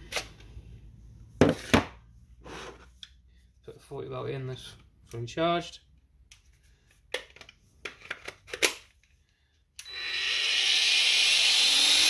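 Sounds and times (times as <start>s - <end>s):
angle grinder whining: 9.8s - 12.0s.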